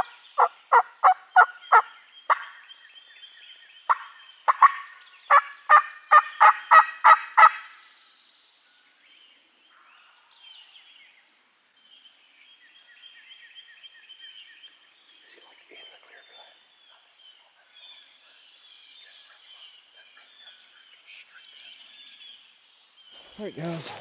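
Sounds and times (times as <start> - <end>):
turkey yelping: 0.0 - 2.5, 3.9 - 7.7
songbird chattering: 0.0 - 7.8, 12.6 - 24.0
faint birdsong: 0.0 - 24.0.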